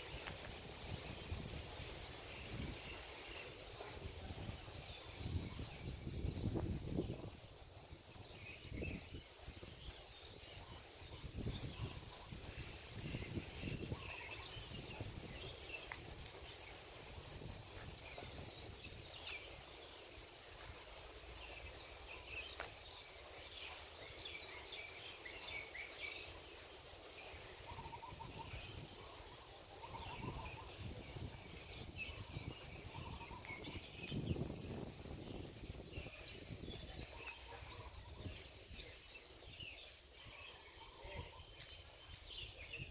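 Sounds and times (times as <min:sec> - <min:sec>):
birds chirping: 0:21.4 - 0:42.9.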